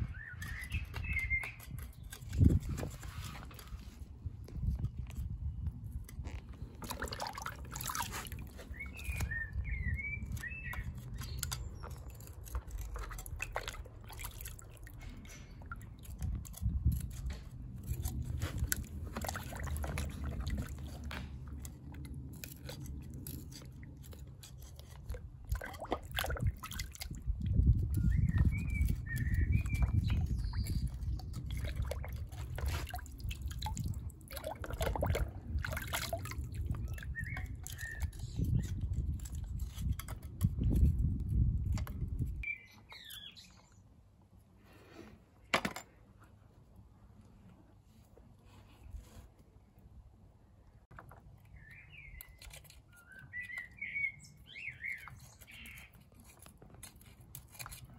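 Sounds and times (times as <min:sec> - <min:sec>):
water splashing in a bucket: 0:06.1 - 0:09.4, 0:10.2 - 0:38.5.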